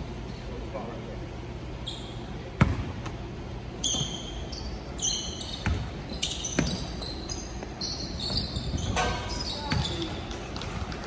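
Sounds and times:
shoes squeaking on court: 0:01.8 - 0:11.0
basketball bouncing on wooden floor: 0:02.6 - 0:02.9, 0:05.6 - 0:06.9, 0:08.2 - 0:10.8.

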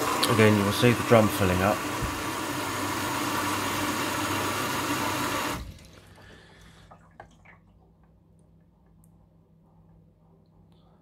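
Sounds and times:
water rushing into washing machine: 0:00.0 - 0:08.0.

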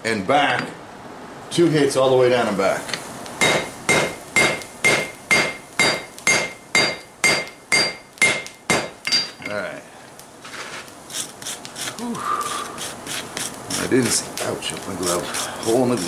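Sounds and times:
hammer striking steel on anvil: 0:03.4 - 0:09.6.

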